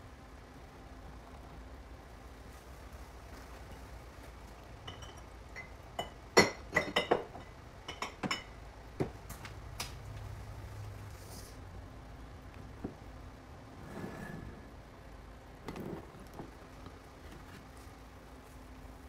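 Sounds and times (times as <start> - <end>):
kitchenware clinking: 4.9 - 8.6.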